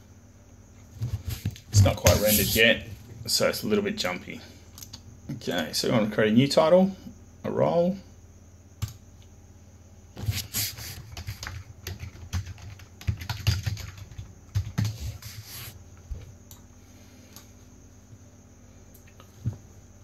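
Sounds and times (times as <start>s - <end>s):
computer keyboard typing: 11.0s - 15.2s.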